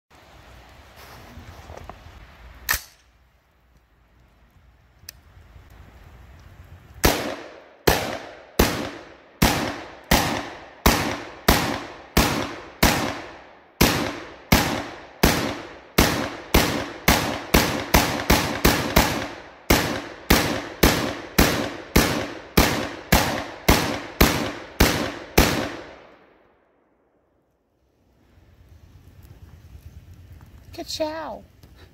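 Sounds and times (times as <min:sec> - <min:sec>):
gunshots with echo: 0:07.0 - 0:26.1.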